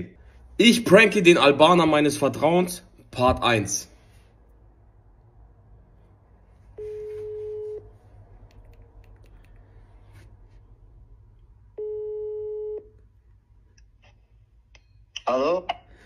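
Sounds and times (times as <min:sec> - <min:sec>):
telephone ringback tone: 0:06.8 - 0:07.9, 0:11.8 - 0:12.9.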